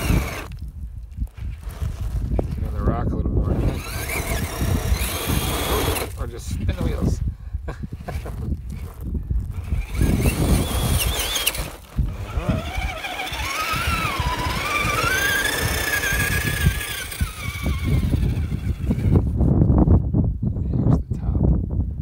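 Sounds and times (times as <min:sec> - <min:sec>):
electric motor whining: 0:00.0 - 0:00.6, 0:01.4 - 0:07.2, 0:08.1 - 0:19.4
wind rumbling on microphone: 0:00.0 - 0:22.0.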